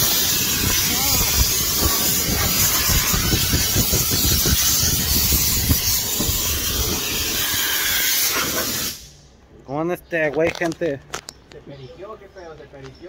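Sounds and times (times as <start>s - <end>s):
loud steady hiss: 0.0s - 9.4s.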